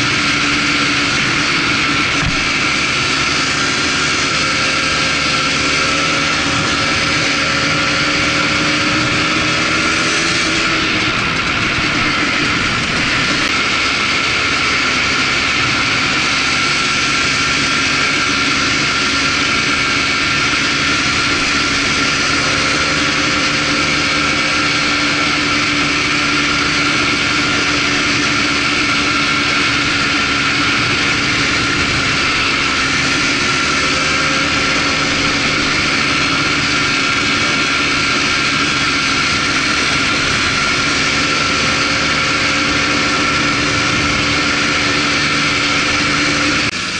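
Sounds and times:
atv engine running: 0.0s - 46.9s
rushing ride noise: 0.0s - 46.9s.

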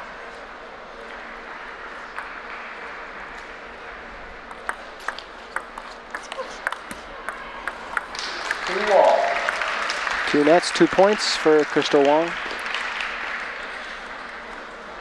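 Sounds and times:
ping pong ball clicking off rackets: 4.5s - 8.2s.

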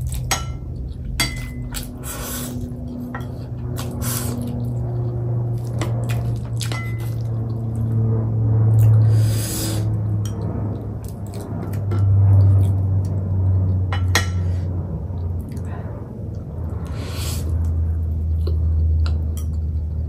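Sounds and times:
chewing noodles: 0.0s - 9.2s, 10.3s - 13.7s
steady low hum: 0.0s - 20.0s.

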